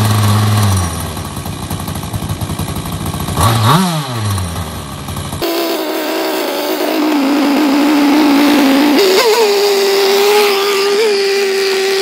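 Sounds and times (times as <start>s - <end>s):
small boat engine high revs: 5.4s - 12.0s.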